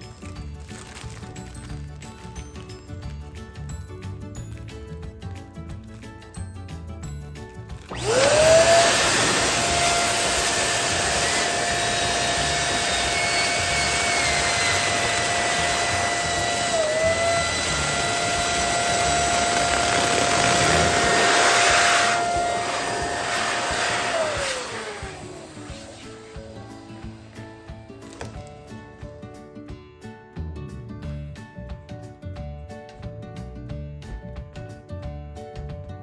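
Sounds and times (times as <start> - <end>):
electric balloon pump whining: 7.5 - 28.7.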